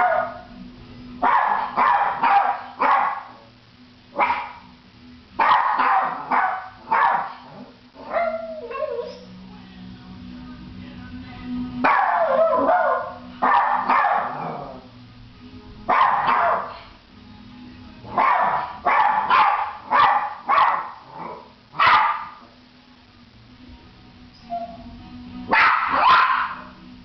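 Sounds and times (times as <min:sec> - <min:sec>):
small dog barking: 0:00.0 - 0:00.4, 0:01.2 - 0:03.4, 0:04.2 - 0:04.6, 0:05.4 - 0:09.2, 0:11.8 - 0:14.8, 0:15.9 - 0:16.8, 0:18.1 - 0:22.5, 0:25.5 - 0:26.8.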